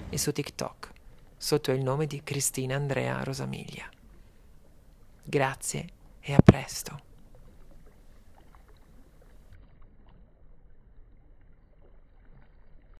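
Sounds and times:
water lapping against rocks: 3.0 - 13.0.

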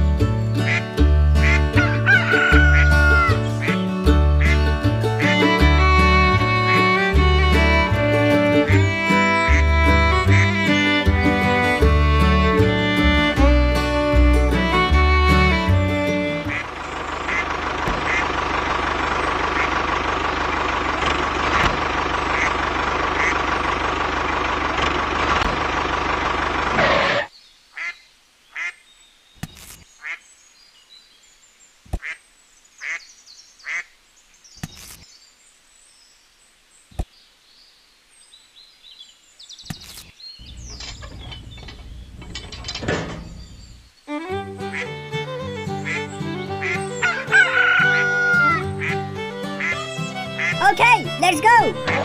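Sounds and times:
loud steady noise: 16.4 - 27.3.

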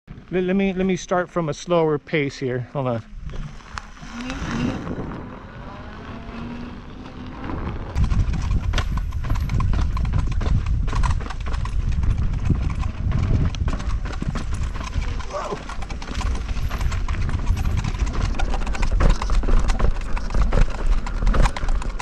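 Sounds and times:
wind noise on microphone: 3.2 - 22.0
wheel knocking and rattling over bumps: 7.4 - 22.0.

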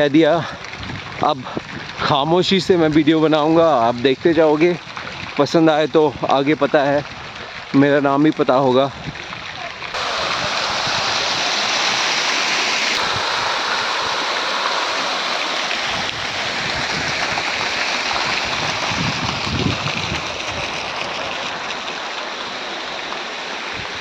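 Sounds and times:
fountain water splashing: 0.0 - 24.0
wind rumble on microphone: 0.4 - 3.1, 4.0 - 7.8, 8.9 - 11.6, 15.9 - 21.7.

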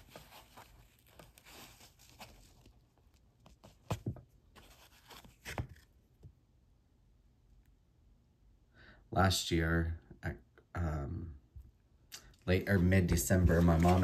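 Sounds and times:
packaging rustling: 0.0 - 3.9, 13.2 - 14.0.

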